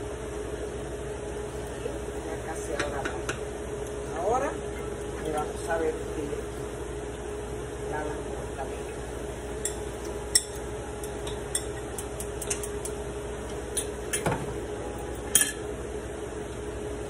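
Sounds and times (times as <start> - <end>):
steady hum: 0.0 - 17.0
utensils clinking against glass bowls: 9.6 - 13.0, 15.3 - 15.6.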